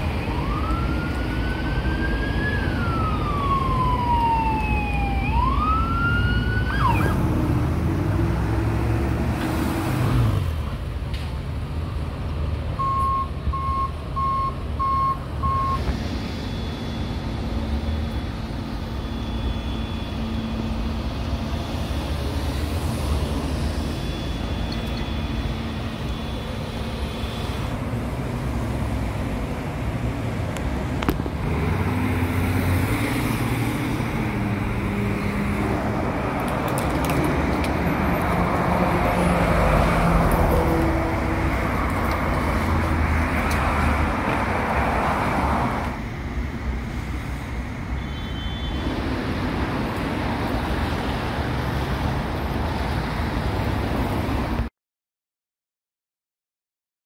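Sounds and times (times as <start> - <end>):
siren wailing: 0.0 - 7.4, 15.4 - 27.7, 38.1 - 42.7
traffic: 0.0 - 54.7
short beeps: 12.8 - 17.4, 18.9 - 20.5, 23.8 - 27.6.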